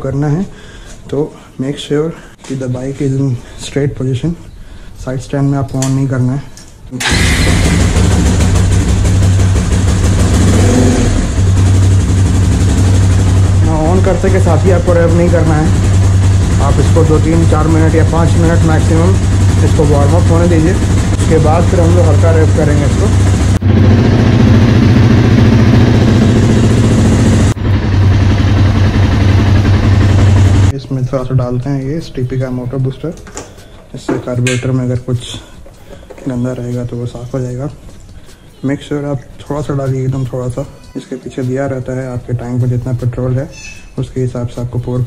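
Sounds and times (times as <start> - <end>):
motorcycle engine idling: 7.0 - 30.7.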